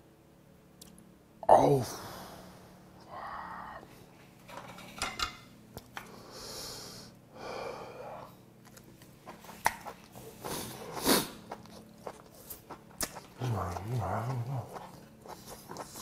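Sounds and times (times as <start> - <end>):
man breathing heavily: 1.9 - 3.9, 6.1 - 8.3
slurping and chewing noodles: 8.6 - 16.0.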